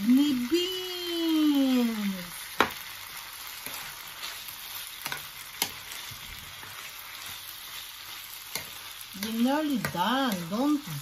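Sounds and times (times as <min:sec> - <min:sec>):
vegetables sizzling in a frying pan: 0:00.0 - 0:11.0
spoon stirring: 0:03.6 - 0:10.6.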